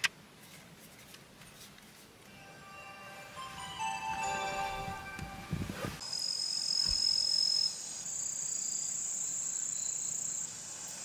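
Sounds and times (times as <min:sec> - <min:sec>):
crickets trilling: 0:06.0 - 0:11.0.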